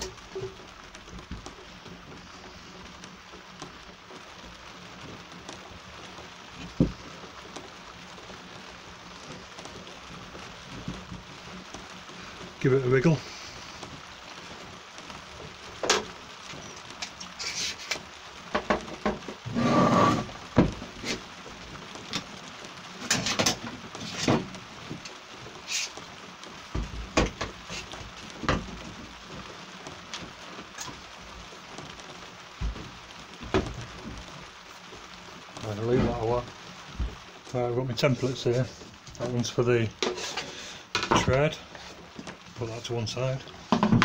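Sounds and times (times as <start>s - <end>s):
scraping rustle: 15.6s - 43.8s
wooden boards knocking on metal table: 43.7s - 44.0s.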